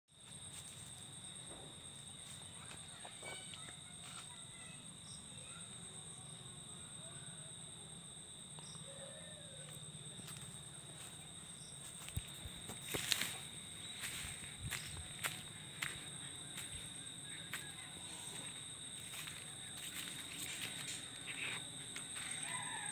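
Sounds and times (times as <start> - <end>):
insects droning: 0.1 - 22.9
footsteps: 9.7 - 22.7.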